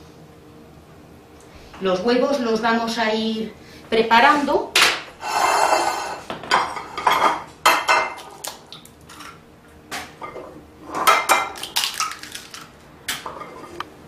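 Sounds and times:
glass dish sliding on counter: 5.2 - 7.3
egg cracking on dish rim: 11.2 - 13.2.

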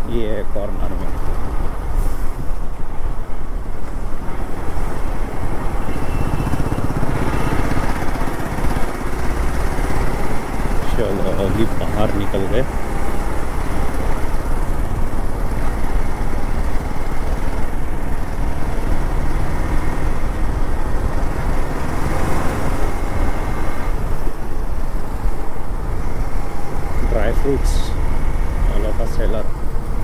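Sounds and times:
wind and road noise: 0.0 - 30.0
motorcycle engine running: 4.8 - 22.0.

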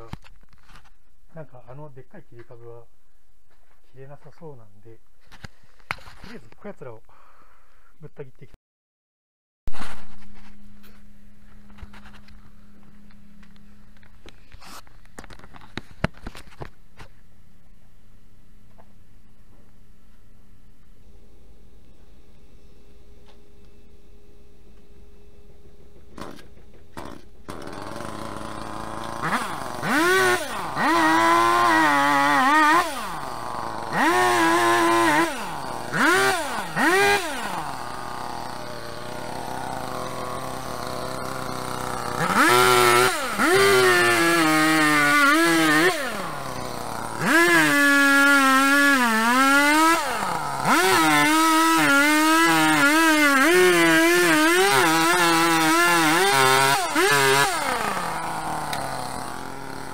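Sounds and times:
chainsaw idling: 25.7 - 59.9
chainsaw revving and cutting: 26.1 - 59.9.

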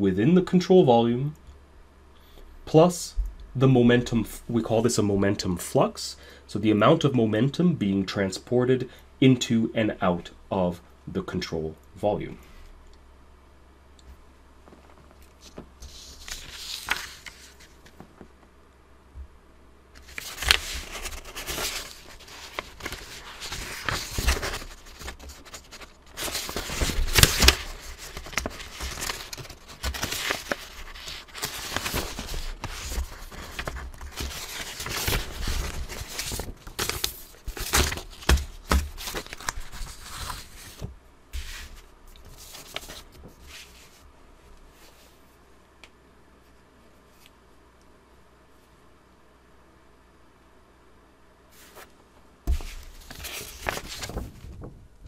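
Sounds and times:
rustling and crinkling handling noise: 14.6 - 18.5, 20.0 - 45.4, 52.5 - 54.9.

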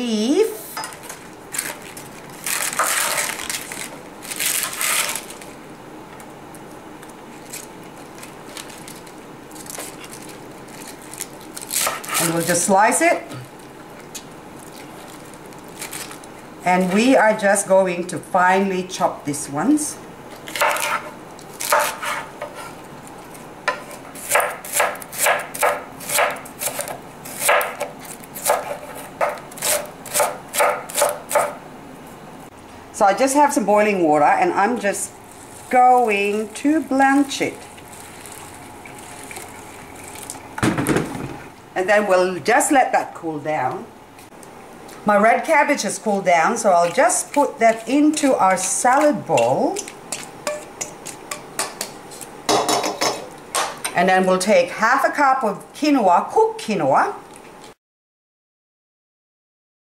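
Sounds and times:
cabbage leaves tearing: 1.5 - 5.6, 7.0 - 12.7, 13.6 - 16.4, 20.3 - 22.1, 24.1 - 31.4, 35.2 - 40.5
knife chopping on wooden board: 21.7 - 22.5, 23.7 - 31.6.

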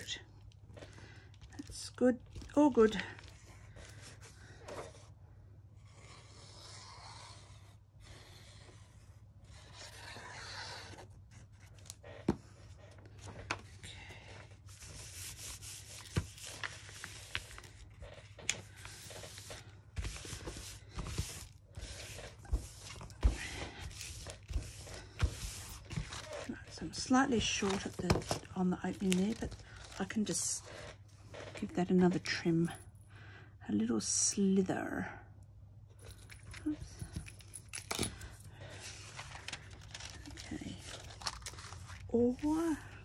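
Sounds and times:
paper rustling and rubbing: 14.5 - 31.8, 38.6 - 42.7.

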